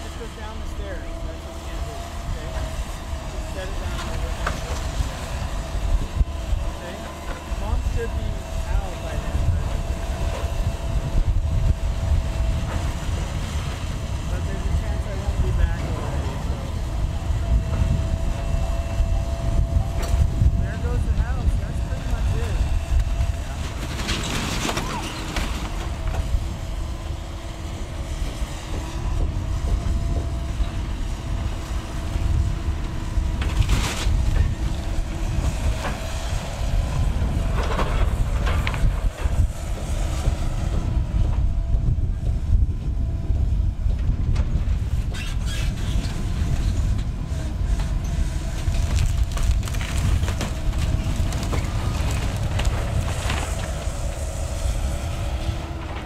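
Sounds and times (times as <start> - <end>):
excavator diesel rumble: 0.0 - 56.0
wood splintering and debris falling: 23.3 - 26.2, 48.6 - 54.0.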